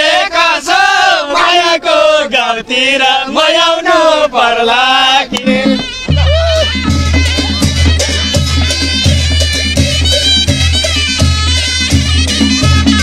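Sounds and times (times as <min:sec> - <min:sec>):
traditional band music: 0:04.8 - 0:13.0.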